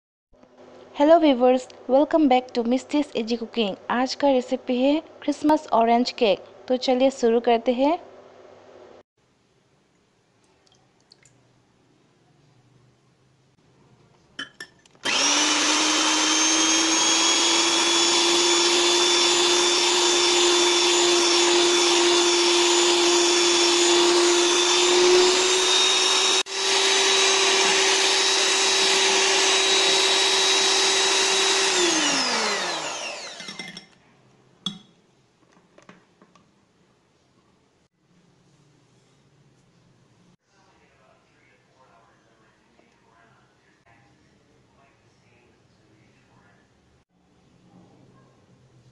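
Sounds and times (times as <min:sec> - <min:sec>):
electric hand mixer whining: 0:15.0 - 0:33.8.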